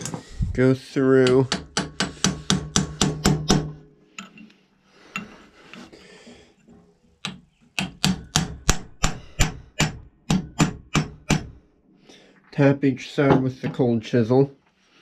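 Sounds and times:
hammer tapping chisel on steel: 0:01.2 - 0:04.4, 0:07.2 - 0:11.5.

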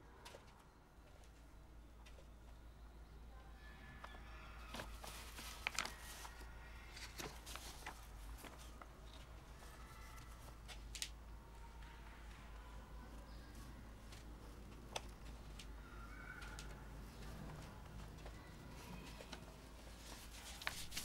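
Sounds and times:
paper rustling: 0:04.7 - 0:11.1, 0:18.7 - 0:21.0.

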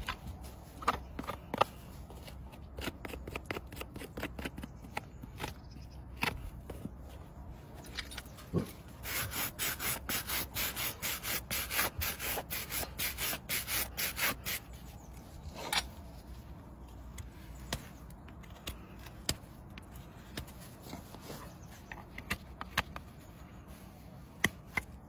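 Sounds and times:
tool scraping a horse's hoof: 0:00.0 - 0:06.8, 0:09.0 - 0:14.8.

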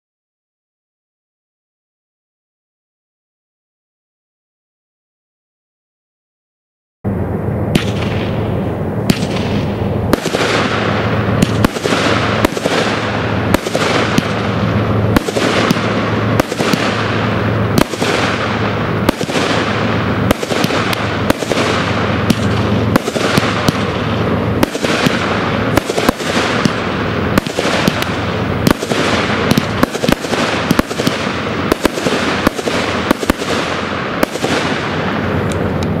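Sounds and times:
firework shots firing: 0:07.5 - 0:36.0
hiss of burning fireworks: 0:07.6 - 0:36.0.

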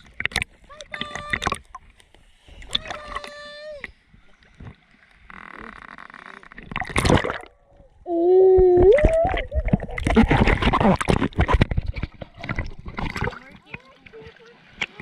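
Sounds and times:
sea water sloshing and splashing: 0:00.0 - 0:07.9, 0:08.6 - 0:15.0
high-pitched voice calling out: 0:00.7 - 0:01.6, 0:02.7 - 0:03.9
underwater rush of water: 0:06.5 - 0:07.8, 0:08.4 - 0:15.0.

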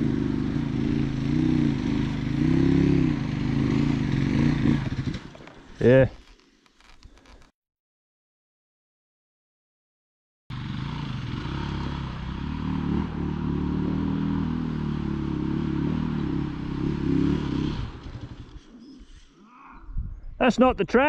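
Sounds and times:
off-road vehicle engine revving: 0:00.0 - 0:06.0, 0:10.5 - 0:19.2.

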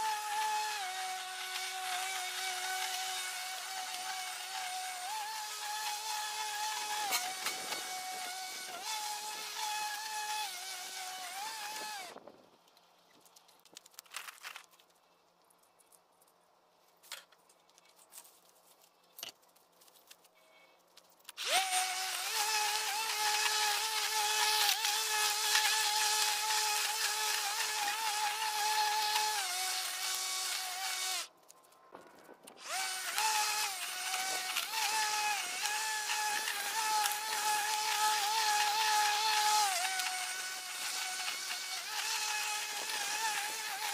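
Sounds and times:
electric lawn mower whine: 0:00.0 - 0:12.2, 0:21.4 - 0:31.3, 0:32.6 - 0:43.9.

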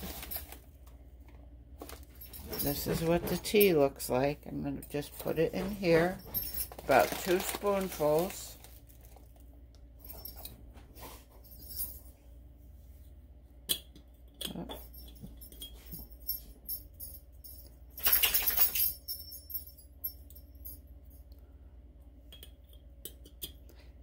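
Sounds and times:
tea leaves rustling: 0:06.7 - 0:09.2.

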